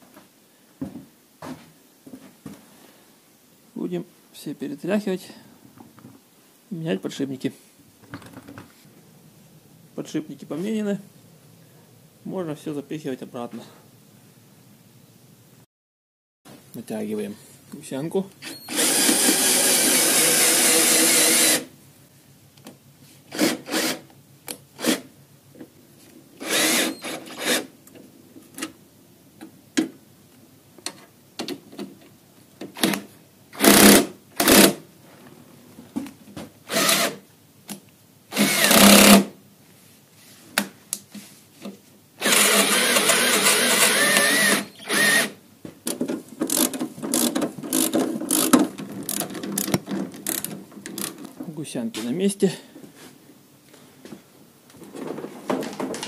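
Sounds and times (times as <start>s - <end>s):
cordless drill turning a bolt: 18.4s - 21.7s, 26.4s - 27.7s, 36.7s - 37.2s, 38.3s - 39.2s, 42.2s - 45.4s.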